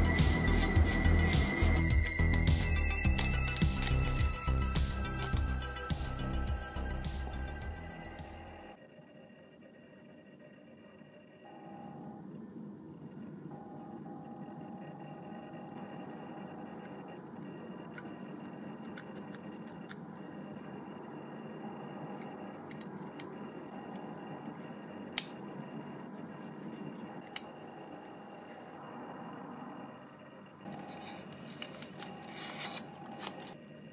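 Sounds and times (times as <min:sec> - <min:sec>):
steady background hum: 0:00.0 - 0:33.9
sharp clicks: 0:16.4 - 0:20.7.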